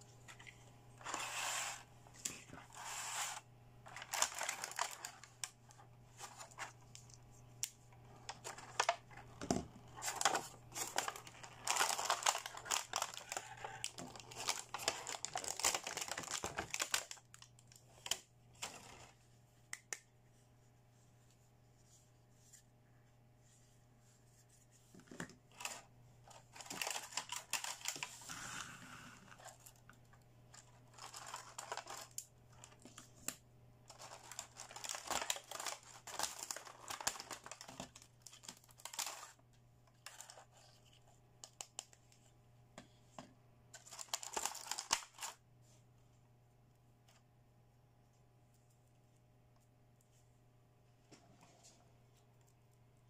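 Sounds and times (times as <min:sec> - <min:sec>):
plastic packaging crinkling: 0:02.6 - 0:07.2, 0:09.9 - 0:19.0, 0:25.5 - 0:28.3, 0:30.5 - 0:33.0, 0:33.9 - 0:39.4, 0:43.8 - 0:45.4.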